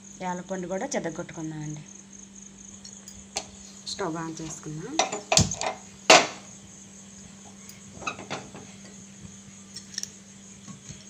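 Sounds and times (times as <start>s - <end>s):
metal cookware knocks: 5.0s - 6.4s.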